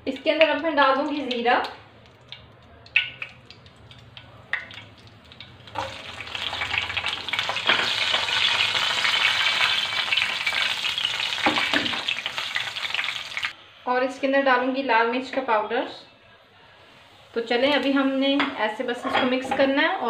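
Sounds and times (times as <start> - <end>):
chillies dropping into oil: 1.2 - 13.4
loud oil sizzle: 2.0 - 13.6.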